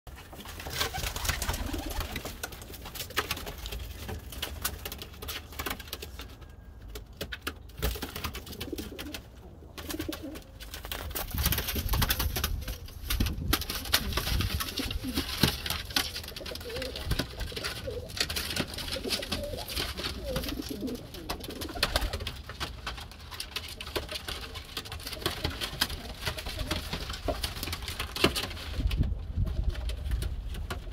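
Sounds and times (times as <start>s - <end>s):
clicks and rustling: 0.1s - 30.9s
pigeons cooing: 0.8s - 2.4s, 16.0s - 22.2s.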